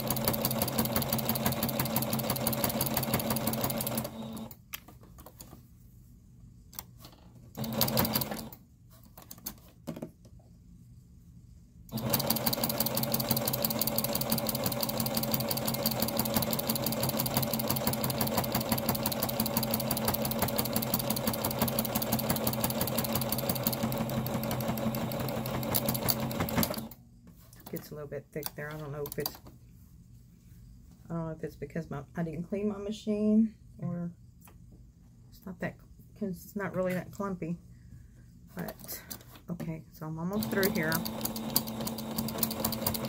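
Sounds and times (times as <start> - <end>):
electric sewing machine stitching: 0.0 - 4.6, 7.5 - 8.6, 11.9 - 27.0, 40.3 - 43.0.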